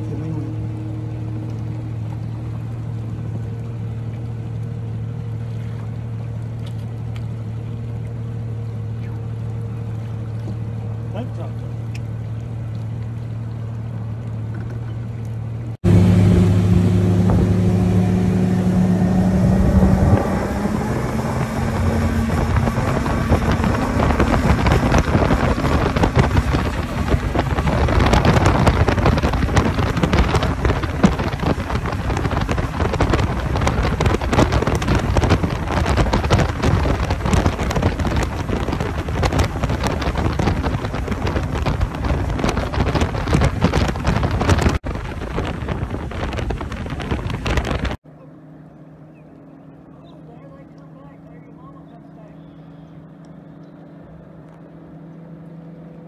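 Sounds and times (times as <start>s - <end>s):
outboard motor running: 0.0s - 56.0s
wind buffeting microphone: 15.8s - 48.0s.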